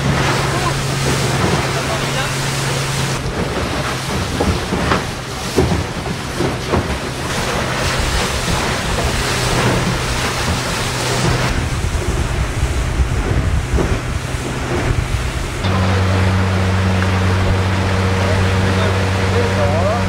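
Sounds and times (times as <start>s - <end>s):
boat engine hum: 0.0s - 20.0s
water hissing along hull: 0.0s - 20.0s
wind buffeting microphone: 0.0s - 20.0s.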